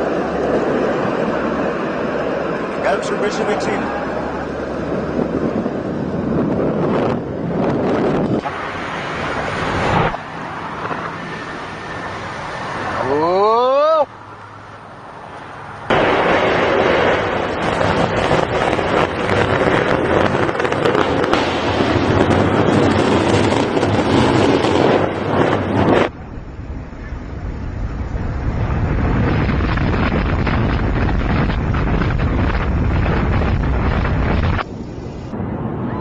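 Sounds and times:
wind buffeting microphone: 0.0s - 13.3s, 14.2s - 36.0s
building demolition rumble and crackle: 15.9s - 34.7s.

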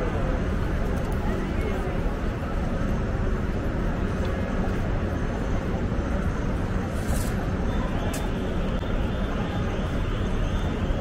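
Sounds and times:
city traffic noise: 0.0s - 11.0s.

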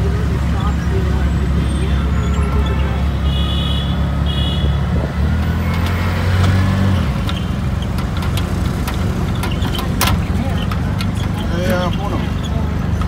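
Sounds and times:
auto-rickshaw engine running: 0.0s - 13.0s
city traffic: 0.0s - 13.0s
high-pitched horn beeps: 1.6s - 4.8s.

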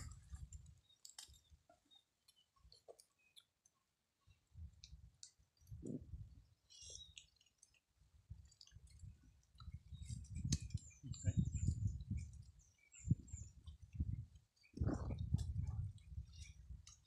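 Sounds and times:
person chewing wetly: 6.9s - 11.0s.

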